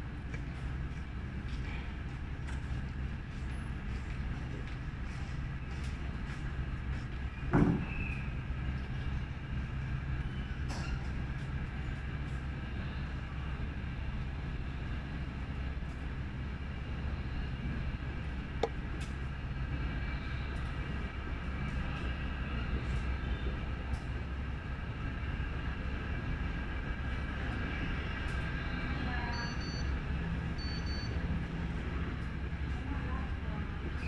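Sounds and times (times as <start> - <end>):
mechanical rumble with whine: 0.0 - 34.0
short high beeps: 30.6 - 31.2.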